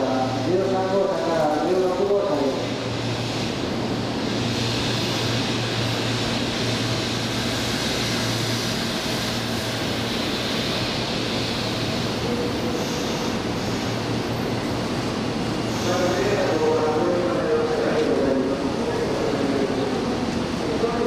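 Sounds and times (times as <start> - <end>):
train low hum: 0.0 - 21.0
rushing hiss: 2.3 - 14.5.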